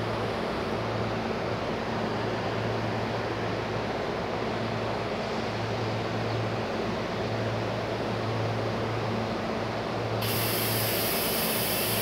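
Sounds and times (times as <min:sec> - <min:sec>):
electric train hum: 0:00.0 - 0:12.0
loud steady hiss: 0:10.2 - 0:12.0.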